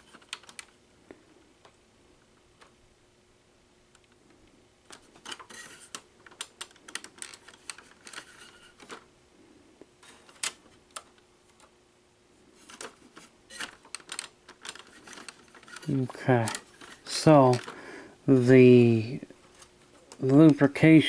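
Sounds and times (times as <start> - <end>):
plastic clicks of cassette mechanism: 0.0 - 0.8, 4.9 - 9.1, 10.0 - 11.7, 12.6 - 17.8.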